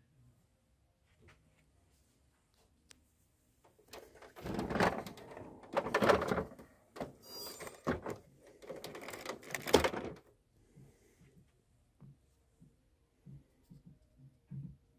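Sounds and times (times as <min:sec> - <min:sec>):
plastic toy car rubbing and knocking: 0:04.0 - 0:10.2.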